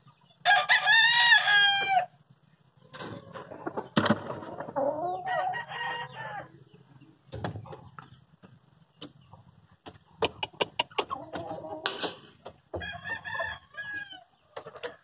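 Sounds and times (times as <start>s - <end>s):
rooster crowing: 0.4s - 2.1s, 5.1s - 6.6s, 12.8s - 14.3s.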